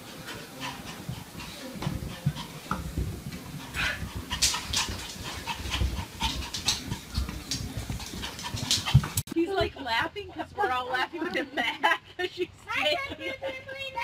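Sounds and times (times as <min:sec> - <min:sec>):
puppy panting: 0:00.0 - 0:09.3.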